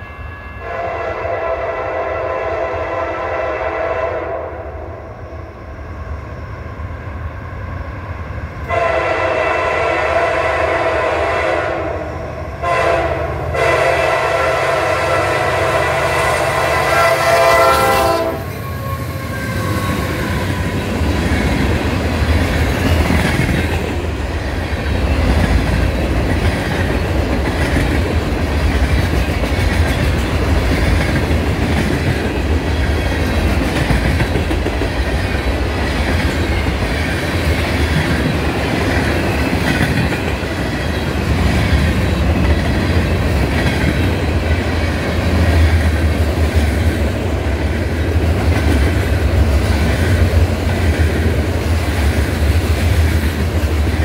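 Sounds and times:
diesel locomotive engines passing: 0:00.0 - 0:54.0
locomotive horn: 0:00.1 - 0:05.0, 0:08.7 - 0:20.3.

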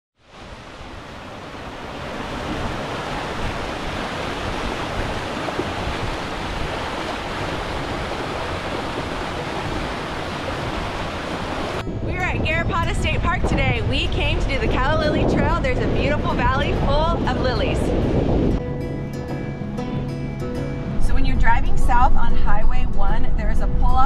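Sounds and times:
creek splashing over rocks: 0:00.2 - 0:11.8.

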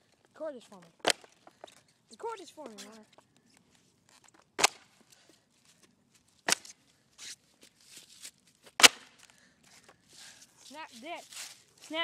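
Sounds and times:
faint scuffing: 0:02.6 - 0:12.0.

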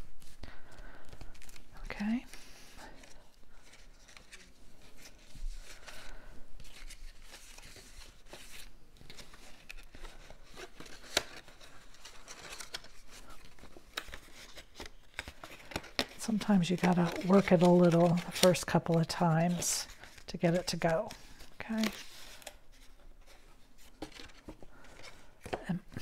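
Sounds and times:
cardstock rustling and creasing: 0:00.0 - 0:26.0.

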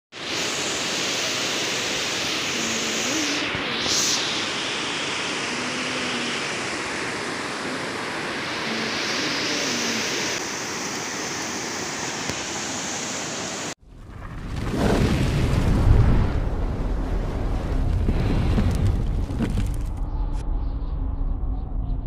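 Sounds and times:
water rushing over weir: 0:00.1 - 0:13.8
low rumble: 0:13.8 - 0:22.0.

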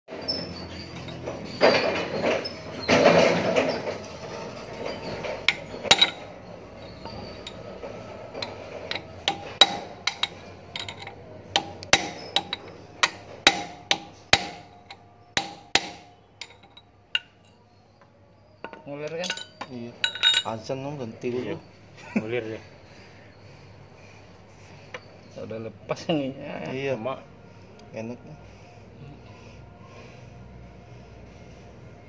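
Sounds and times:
scraping and handling noise: 0:00.8 - 0:13.5
hammer striking steel punch: 0:09.2 - 0:10.3, 0:11.6 - 0:16.6.

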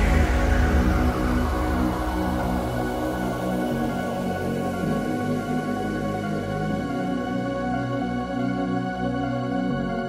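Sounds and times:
electronic music with heavy bass: 0:00.0 - 0:08.0.

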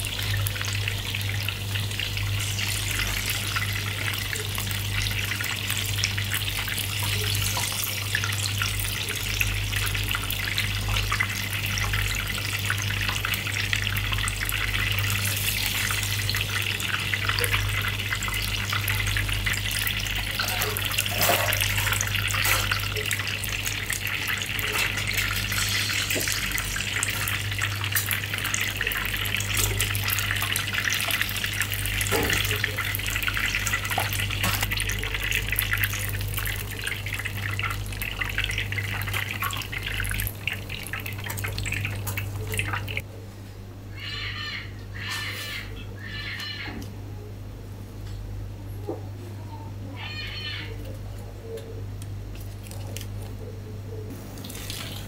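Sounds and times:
water running from tap: 0:00.0 - 0:43.0, 0:54.3 - 0:55.0
constant low hum: 0:00.0 - 0:55.0.

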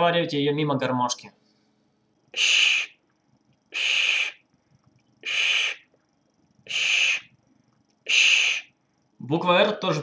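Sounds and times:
breath hissing past harmonica: 0:02.3 - 0:03.0, 0:03.7 - 0:04.4, 0:05.2 - 0:05.9, 0:06.6 - 0:07.3, 0:08.0 - 0:08.7.

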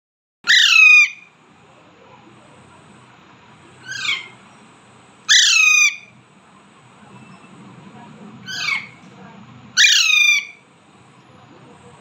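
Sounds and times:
parakeet harsh calls: 0:00.4 - 0:01.4, 0:03.8 - 0:04.4, 0:05.2 - 0:06.2, 0:08.4 - 0:09.0, 0:09.7 - 0:10.7.

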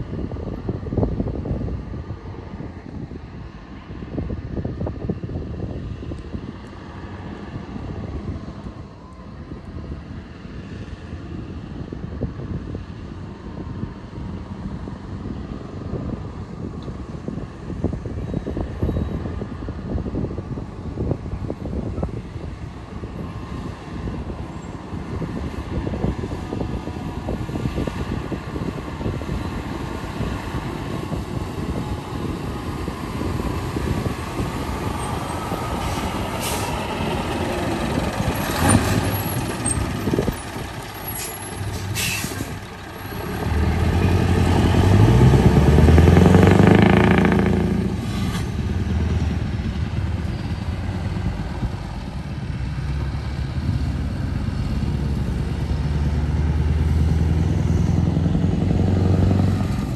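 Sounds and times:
diesel truck engine rumbling: 0:00.0 - 0:59.9
truck revving: 0:19.2 - 0:59.9
air brake hisses: 0:35.9 - 0:36.8, 0:41.2 - 0:42.6.

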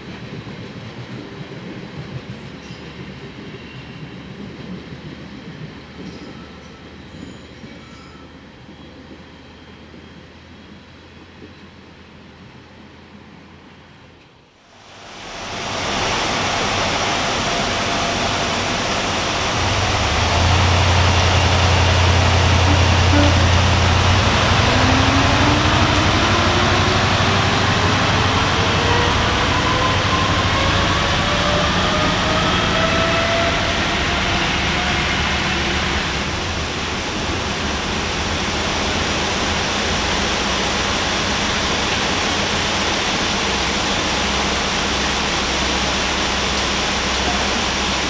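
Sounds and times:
steady hiss: 0:14.6 - 0:24.5
diesel engine whine rising: 0:14.6 - 0:48.0.

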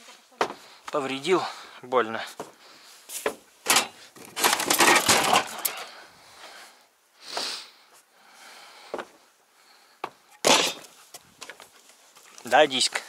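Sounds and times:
rustle: 0:00.0 - 0:08.1, 0:09.8 - 0:13.0
gear clattering: 0:03.7 - 0:05.9.

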